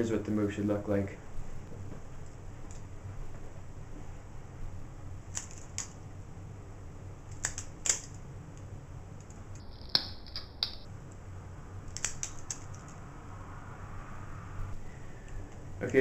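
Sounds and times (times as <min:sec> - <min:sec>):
butterfly knife handles clicking: 0:11.9 - 0:13.0.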